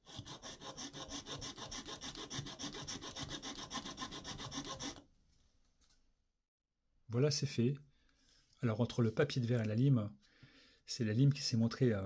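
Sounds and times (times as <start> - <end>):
hand file rasping on plastic pipe: 0.0 - 5.1.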